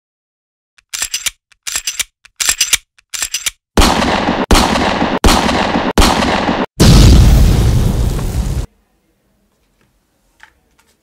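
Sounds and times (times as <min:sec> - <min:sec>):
rapid gunshot bursts: 0:03.8 - 0:06.7.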